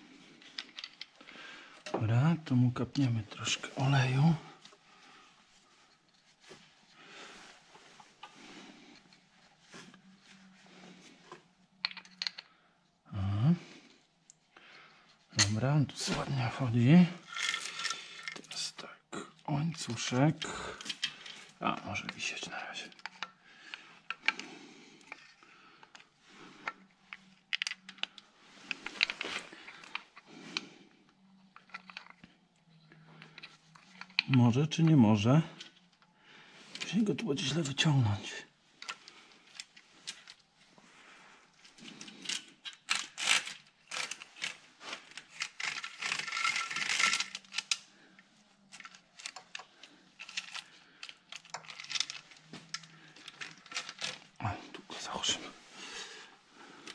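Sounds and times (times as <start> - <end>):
rustling handling noise: 0.0 - 12.6, 14.1 - 18.8, 19.5 - 56.9
metal parts clicking and clinking: 0.4 - 2.0, 11.8 - 12.5, 17.2 - 18.6, 19.7 - 22.2, 24.0 - 24.4, 25.0 - 30.0, 31.5 - 32.3, 41.7 - 47.9, 48.7 - 54.4
rustling: 14.7 - 18.6, 38.5 - 54.8
metal tools clinking: 17.2 - 18.6, 41.9 - 47.8.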